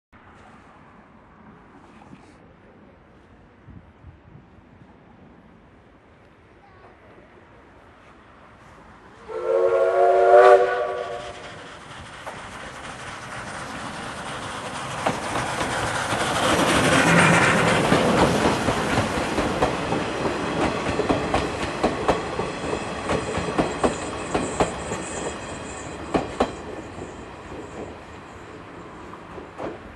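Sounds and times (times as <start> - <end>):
train passing with a rumble: 0.2 - 29.9
steam locomotive whistle blast: 9.2 - 11.6.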